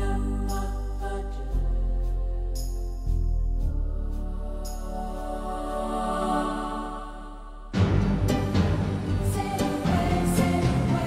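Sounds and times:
deep bass: 0:00.0 - 0:11.0.

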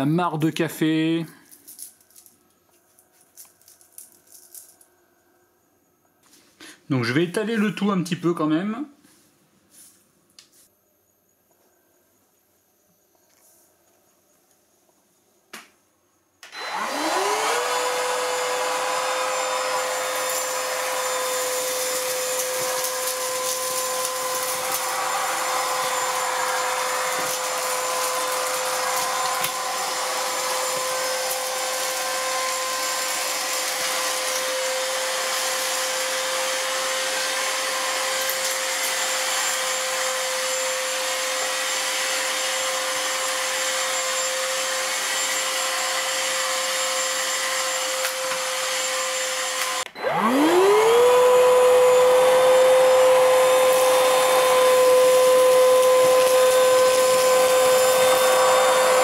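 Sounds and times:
brush head sweeping tile floor: 0:09.0 - 0:10.7, 0:16.6 - 0:59.0
vacuum cleaner motor whine: 0:16.4 - 0:59.0.

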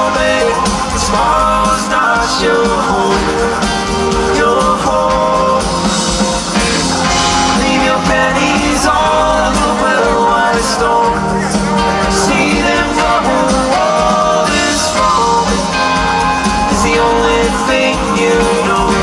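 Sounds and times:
drum kit with cymbals: 0:00.0 - 0:19.0
electric guitars: 0:00.0 - 0:19.0
keyboards: 0:00.0 - 0:19.0.

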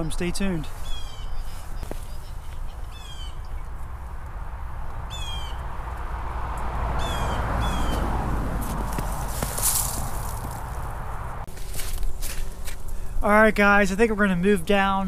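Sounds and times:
bird calling: 0:00.7 - 0:04.1, 0:04.8 - 0:05.8, 0:07.0 - 0:11.1
wind rumble on microphone: 0:01.2 - 0:11.5.

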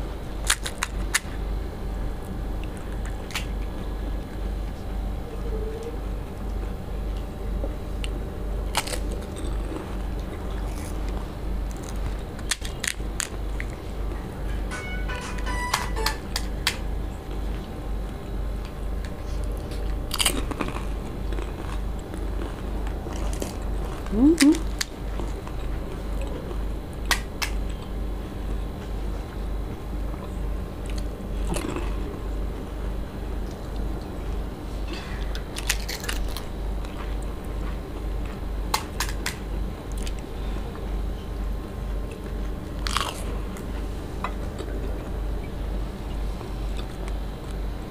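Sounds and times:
steady low hum: 0:00.0 - 0:47.9
crisp shells cracking and crunching: 0:00.4 - 0:01.3, 0:02.6 - 0:03.6, 0:08.0 - 0:13.8, 0:18.6 - 0:26.4, 0:27.1 - 0:27.7, 0:35.3 - 0:37.0, 0:38.7 - 0:40.2, 0:42.7 - 0:43.3
wet chewing: 0:08.0 - 0:14.3, 0:18.6 - 0:27.8.

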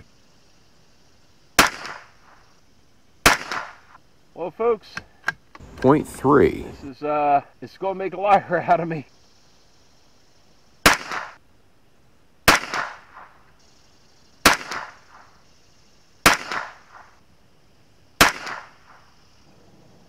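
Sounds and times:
rifle shots: 0:01.6 - 0:02.3, 0:03.2 - 0:03.9, 0:10.8 - 0:11.4, 0:12.5 - 0:13.3, 0:14.4 - 0:15.4, 0:16.2 - 0:17.2, 0:18.2 - 0:19.2.

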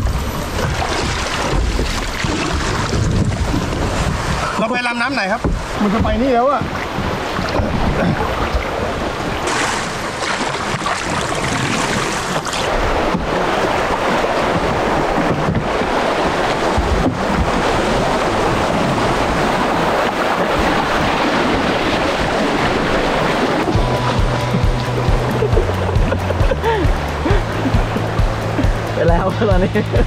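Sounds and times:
river rapids rushing and splashing: 0:00.0 - 0:30.0
wind buffeting microphone: 0:00.0 - 0:30.0
sharp knocks: 0:05.4 - 0:08.0.

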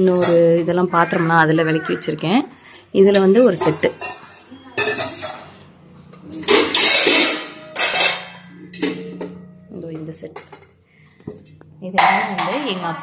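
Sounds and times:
metal pots and lids clattering: 0:00.0 - 0:02.3, 0:03.0 - 0:13.0.

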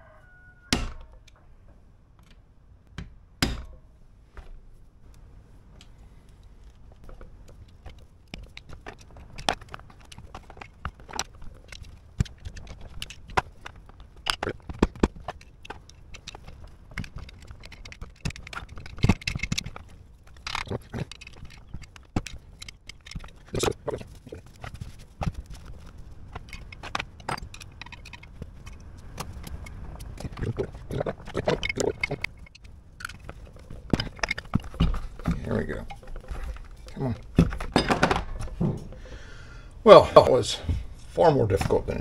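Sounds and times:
metal scraping: 0:06.2 - 0:39.2
metal knocks and clicks: 0:06.9 - 0:39.1.

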